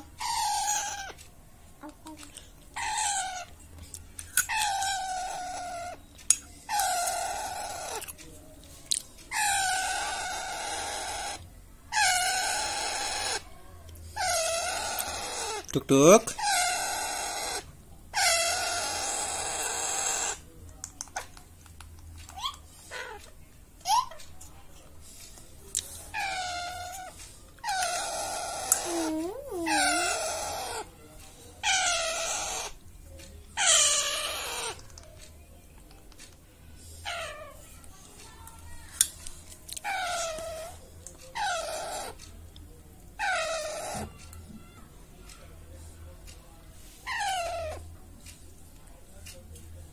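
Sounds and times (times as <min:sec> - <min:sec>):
parakeet harsh begging calls: 0:27.9 - 0:30.8.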